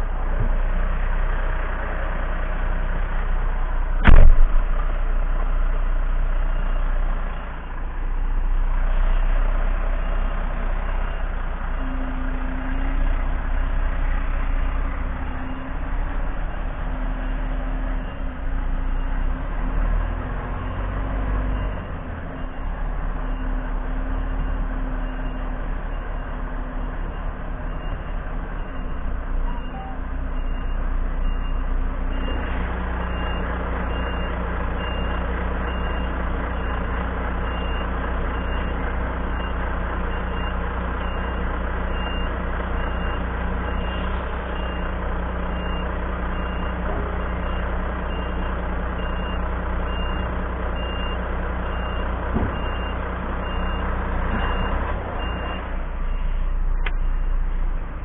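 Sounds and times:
diesel truck engine running: 0.0 - 58.0
reversing alarm beeping: 14.6 - 57.5.

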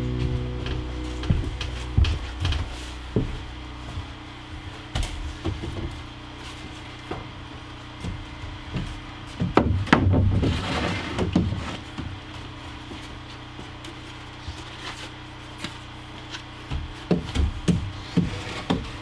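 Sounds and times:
boards knocking on wooden framing: 7.0 - 10.6, 16.6 - 19.0
board scraping: 10.2 - 11.8, 18.0 - 19.0.

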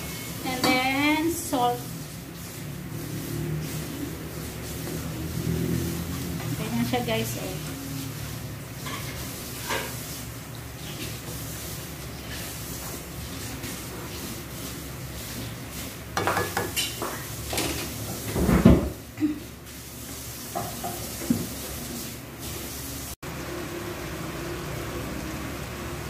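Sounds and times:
sauce sizzling: 0.0 - 18.3, 19.4 - 26.0
spatula scraping a pan: 0.0 - 18.3
knocks against a pan: 16.2 - 17.2.

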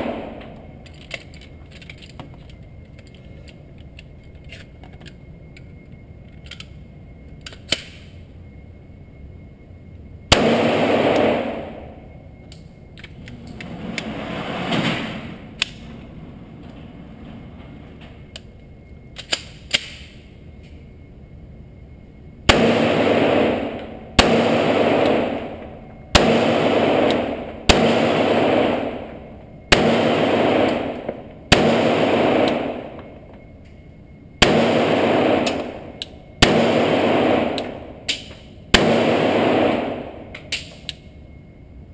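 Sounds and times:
pistol shots echoing indoors: 0.0 - 2.0, 7.4 - 8.2, 10.3 - 13.7, 19.1 - 20.4, 22.4 - 41.1.

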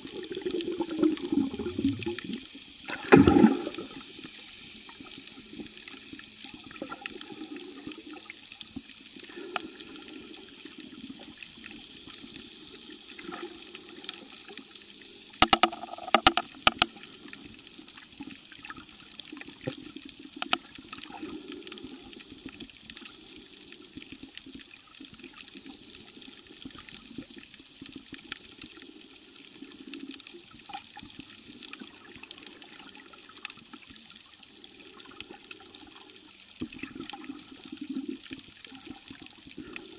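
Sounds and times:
muffled underwater water wash: 0.0 - 39.9
underwater clicks: 15.4 - 17.0, 20.4 - 20.7.

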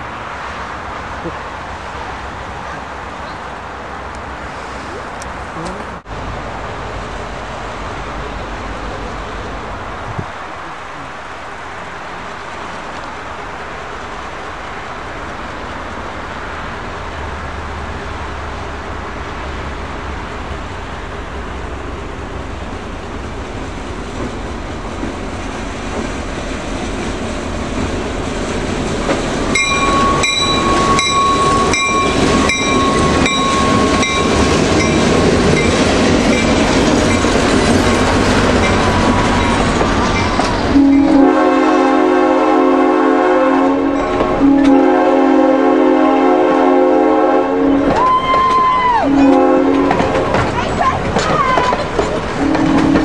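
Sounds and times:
diesel locomotive rumble: 0.0 - 53.0
train wheels clacking on rail joints: 23.6 - 41.1, 47.8 - 53.0
steady high tone: 29.6 - 35.7
locomotive horn: 40.7 - 50.3, 52.4 - 53.0.

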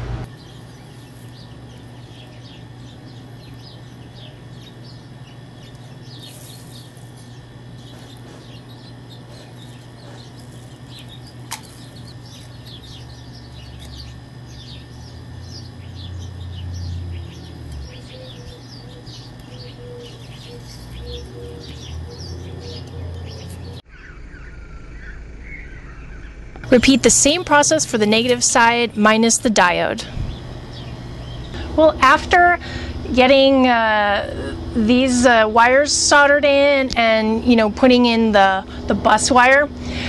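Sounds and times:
steady low hum: 0.0 - 40.0
small birds chirping: 0.2 - 31.6
low rumble: 30.0 - 34.9.

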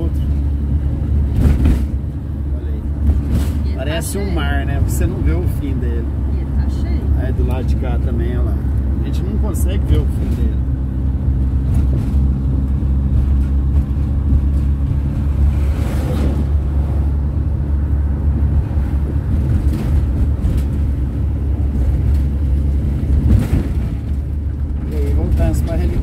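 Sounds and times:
van engine and road rumble: 0.0 - 26.0.

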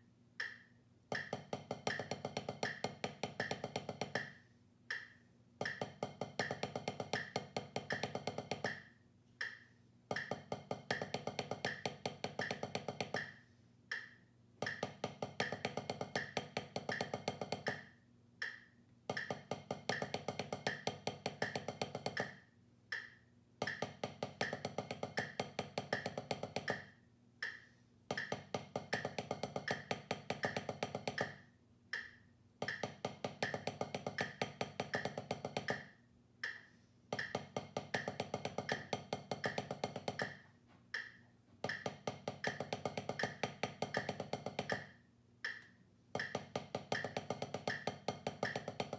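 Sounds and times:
drumsticks striking practice pad: 0.4 - 31.4, 32.0 - 48.9.

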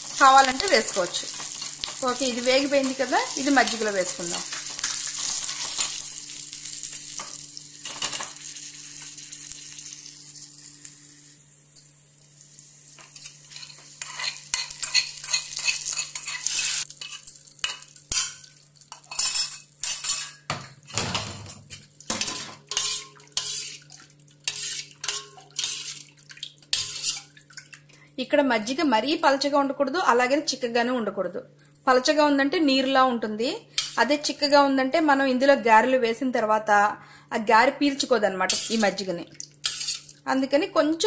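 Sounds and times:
seeds sizzling in hot oil: 0.0 - 20.3, 22.1 - 27.3, 38.5 - 40.2
metal spoon scraping and clinking: 13.0 - 20.9, 21.6 - 23.8, 24.4 - 26.1, 26.7 - 27.4, 38.5 - 38.9, 39.6 - 40.1.

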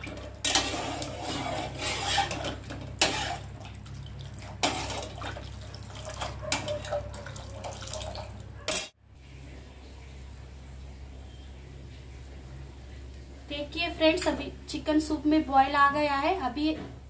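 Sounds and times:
ladle clinking and scraping pot: 0.0 - 3.6, 4.6 - 9.0
broth splashing and pouring: 3.0 - 8.5.

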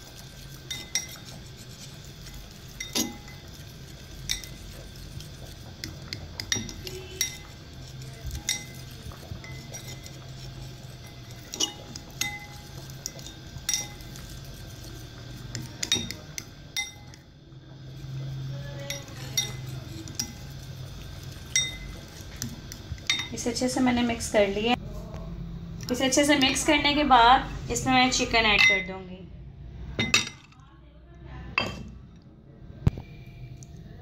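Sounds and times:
soft wet stirring: 0.0 - 26.6
fork clinking against bowl: 11.0 - 14.0.

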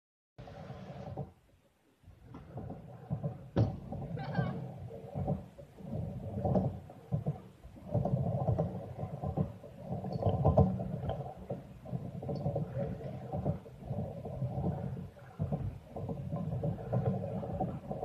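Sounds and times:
scooter wheels rolling on concrete: 2.1 - 18.0
scooter decks clacking on concrete: 2.3 - 5.4.

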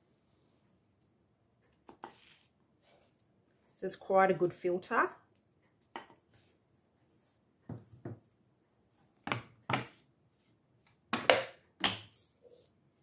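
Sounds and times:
kitchen items knocking on benchtop: 9.2 - 10.0, 11.1 - 12.0.

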